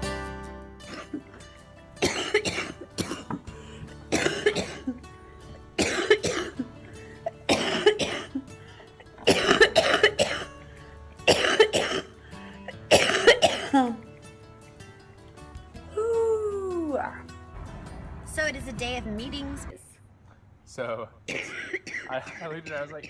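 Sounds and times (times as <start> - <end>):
faint background music: 0.0 - 23.0
woman coughing hard: 0.9 - 1.4, 2.0 - 5.1, 5.8 - 10.6, 11.2 - 14.0, 21.3 - 23.0.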